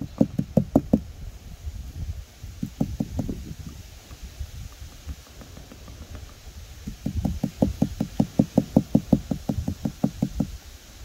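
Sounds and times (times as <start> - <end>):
rapid tapping on glass: 6.9 - 10.5.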